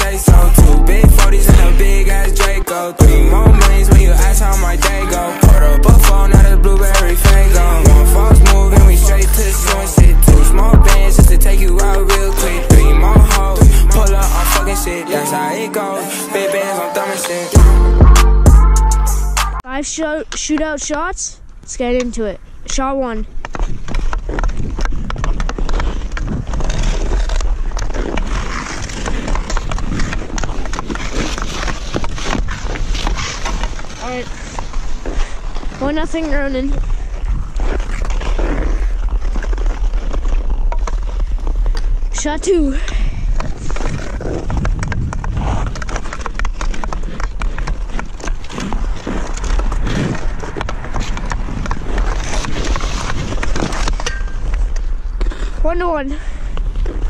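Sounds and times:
skates scraping on ice: 0.0 - 17.6, 23.2 - 57.0
wind rumble on microphone: 22.6 - 55.6
hockey stick clicking puck: 23.4 - 34.7, 43.4 - 55.4.

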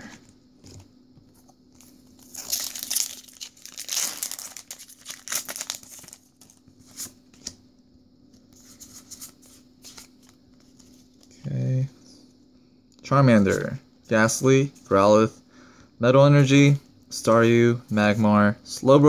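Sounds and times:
foil wrapper tearing and crinkling: 2.2 - 6.6.

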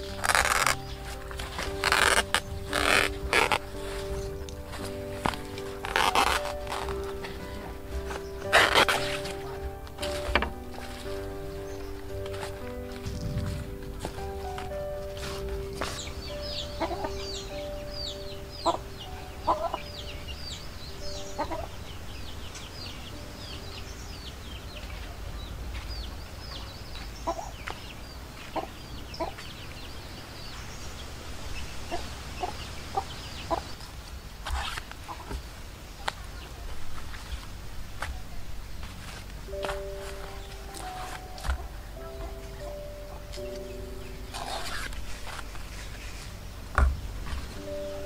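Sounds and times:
chicks peeping: 0.0 - 48.0
chickens clucking: 2.4 - 23.5, 25.9 - 29.9, 31.8 - 34.0.

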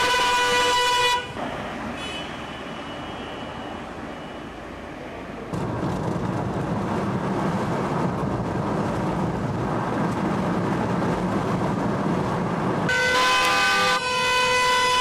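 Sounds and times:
car horns honking: 0.0 - 4.5, 12.9 - 15.0
car tyre and wind noise: 5.5 - 15.0.

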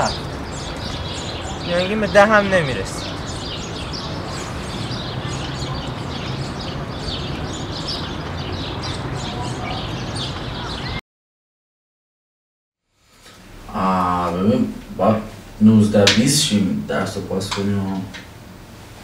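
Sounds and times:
outdoor background hiss: 0.0 - 11.0, 12.9 - 19.0
small birds chirping: 0.0 - 11.0.

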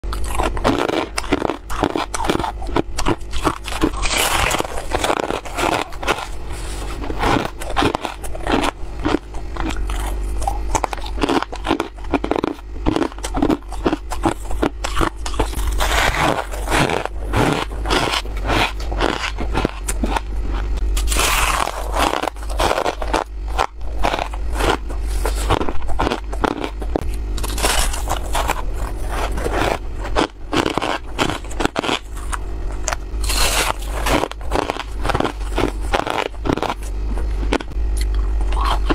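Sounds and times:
crunching and chewing frost: 0.0 - 38.9
fingers scraping frost in bowl: 13.1 - 37.5.

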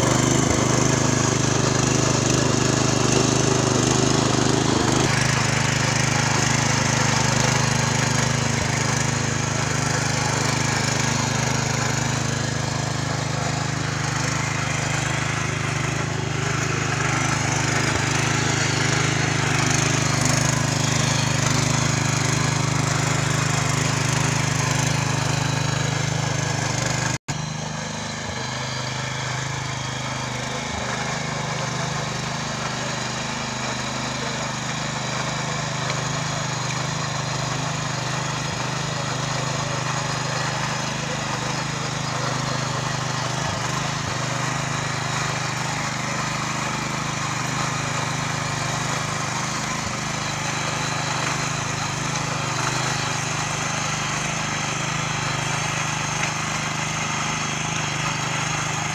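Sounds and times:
tiller engine running: 0.0 - 58.9
tines churning soil: 0.0 - 58.9.

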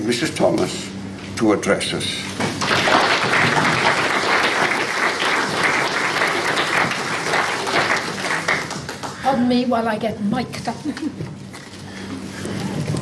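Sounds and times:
audience applauding: 2.5 - 9.2.

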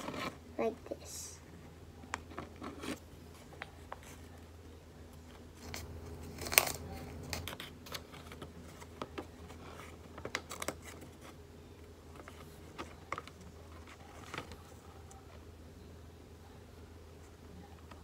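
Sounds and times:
paper crinkling and rustling: 0.0 - 0.4, 5.2 - 11.4, 12.1 - 15.4.

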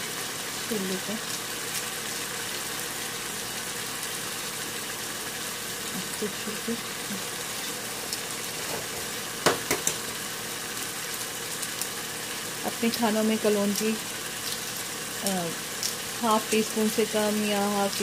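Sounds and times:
food sizzling in frying pan: 0.0 - 18.0.

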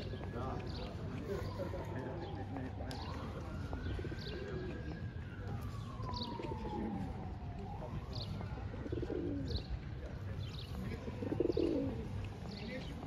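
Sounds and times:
low town rumble: 0.0 - 13.0
pigeons cooing: 8.7 - 9.6, 11.1 - 12.1.

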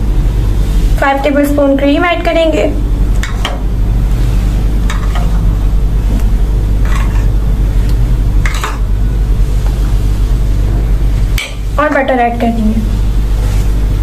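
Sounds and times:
steady low hum: 0.0 - 14.0
spoon scraping bowl: 4.8 - 5.4, 6.0 - 7.5, 8.4 - 8.8.

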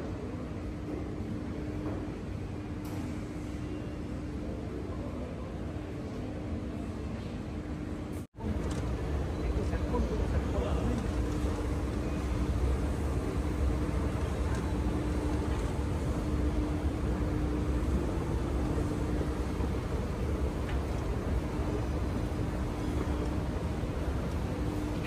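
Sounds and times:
faint steady hum: 0.0 - 25.0.

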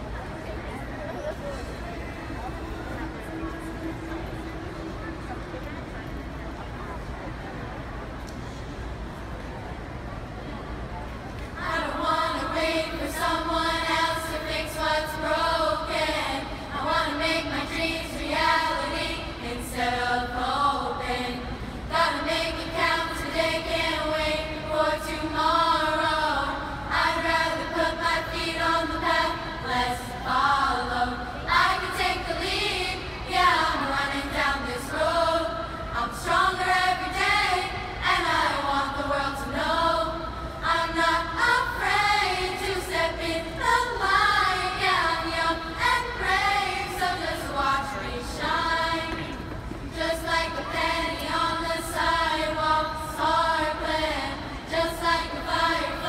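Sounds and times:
girls' chorus singing: 11.6 - 56.0.

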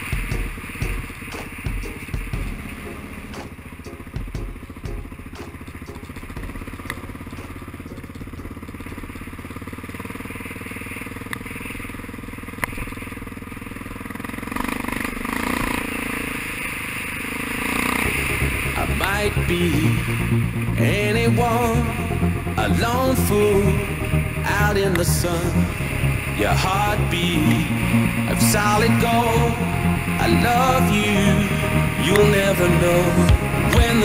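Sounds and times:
motorcycle engine running: 0.0 - 34.0
knocks and clatter over rough ground: 3.4 - 10.4.

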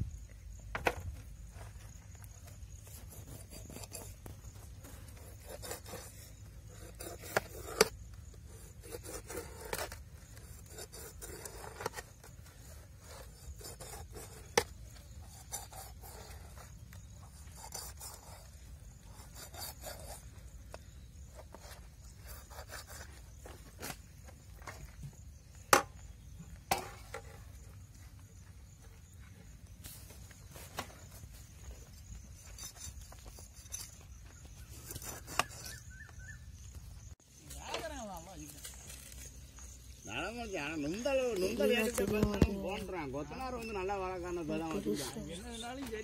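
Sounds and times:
knife scraping fish: 2.8 - 24.0, 32.3 - 36.4
knife cutting fish scales: 12.7 - 20.3.

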